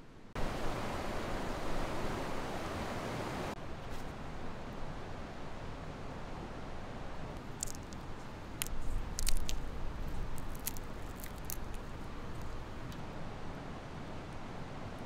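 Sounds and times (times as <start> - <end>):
nut shell cracking: 7.4 - 12.6.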